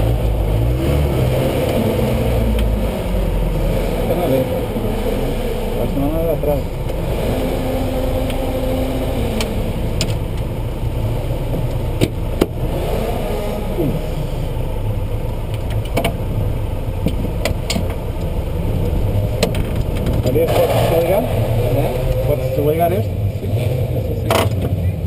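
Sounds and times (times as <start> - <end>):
car engine running at low revs: 0.0 - 25.0.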